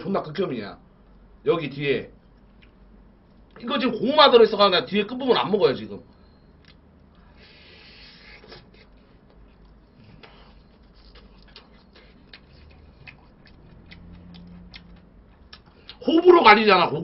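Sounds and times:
mouth chewing food: 7.9 - 16.0.

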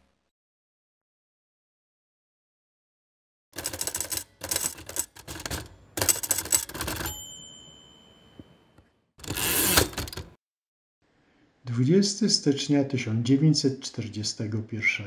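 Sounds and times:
typewriter keys clacking: 3.6 - 7.2, 9.2 - 10.4
typewriter carriage bell ding: 3.6 - 10.3.

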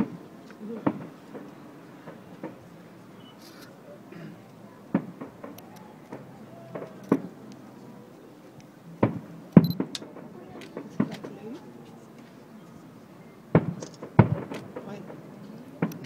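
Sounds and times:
distant fireworks thumps: 0.0 - 2.7, 4.9 - 7.4, 9.0 - 11.7, 13.5 - 16.0.

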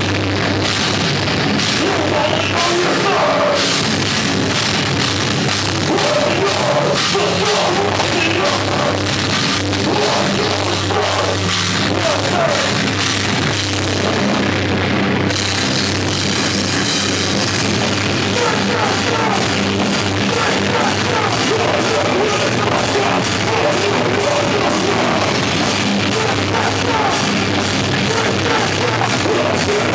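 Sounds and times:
bass guitar: 0.0 - 29.9
distorted electric guitars: 0.0 - 29.9
drum kit: 0.0 - 29.9
person shouting vocals: 9.8 - 12.7.

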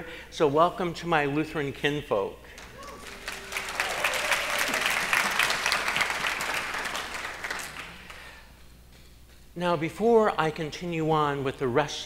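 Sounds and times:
audience applauding: 2.6 - 8.3.

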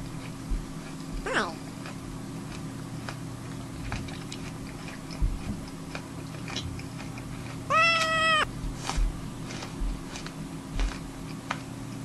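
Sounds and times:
person chewing an apple: 0.0 - 7.7, 10.0 - 11.7
cat meowing: 1.3 - 1.6, 7.7 - 8.5.

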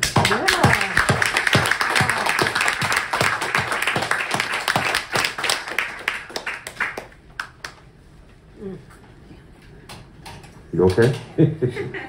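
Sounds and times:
audience applauding: 0.0 - 7.8
close hands clapping steadily: 0.0 - 7.8.

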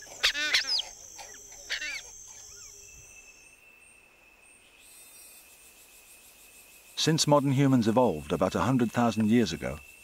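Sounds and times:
rapid chirping calls: 0.0 - 3.4
high-pitched insect drone: 0.0 - 10.0.

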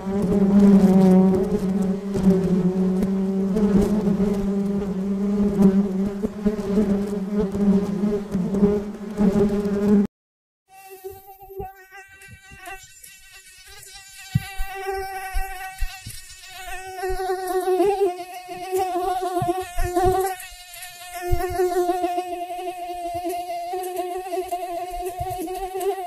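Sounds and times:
mosquito buzzing: 0.0 - 10.1, 10.7 - 26.0.

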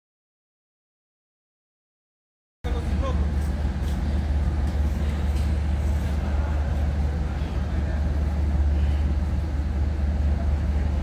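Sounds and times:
railcar diesel engine droning: 2.6 - 11.0.

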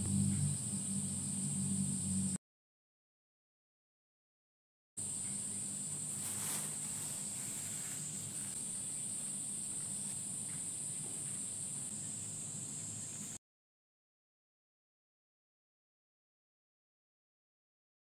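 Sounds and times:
cicadas shrilling: 0.0 - 2.4, 5.0 - 13.4
low steady hum: 0.0 - 2.4, 5.0 - 13.4
brief rustle: 6.0 - 8.6.

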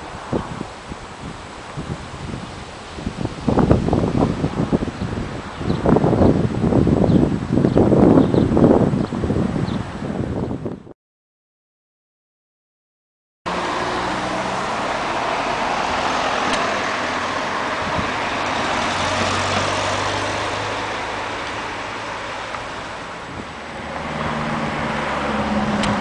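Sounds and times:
cars passing on street: 0.0 - 10.5, 13.5 - 26.0.

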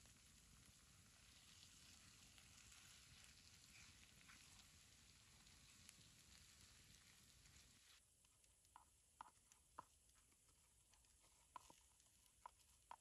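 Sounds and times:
faint even hiss: 0.0 - 13.0
soft ticks: 8.2 - 13.0.

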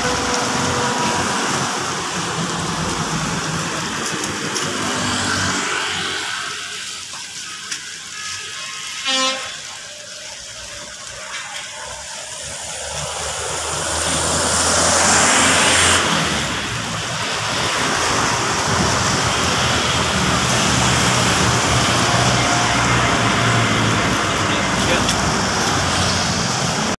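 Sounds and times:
motorcycles passing: 0.0 - 8.1, 11.8 - 26.9
buses passing: 0.0 - 26.9
short horn beep: 9.0 - 9.6
steady engine hum: 12.6 - 26.9.

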